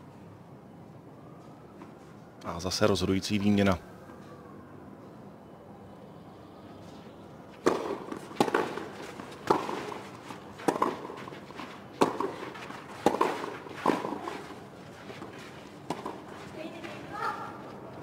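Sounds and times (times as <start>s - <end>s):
tennis racket hitting ball: 7.6s - 17.0s.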